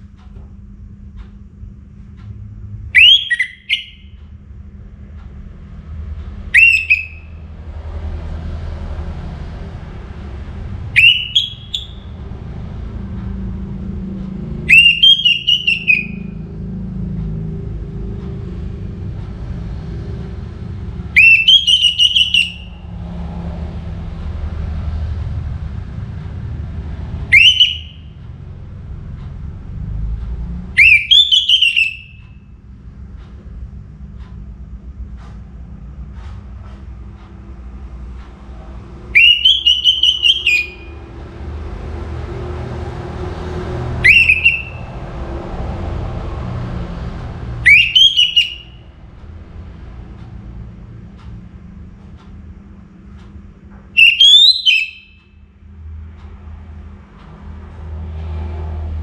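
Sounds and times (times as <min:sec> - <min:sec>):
thrush singing whistled phrases: 0:03.0 - 0:04.2, 0:06.5 - 0:07.4, 0:10.9 - 0:12.2, 0:14.7 - 0:16.4, 0:21.1 - 0:22.8, 0:27.2 - 0:28.1, 0:30.8 - 0:32.4, 0:39.1 - 0:41.0, 0:44.0 - 0:45.0, 0:47.6 - 0:49.0, 0:54.0 - 0:55.3.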